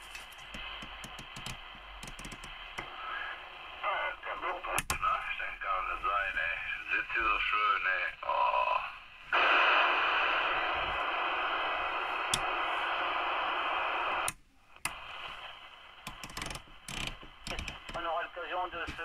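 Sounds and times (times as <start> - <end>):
radio static hiss: 0.0 - 19.0
radio control clicks and crackles: 0.1 - 3.0, 4.6 - 5.2, 9.4 - 19.0.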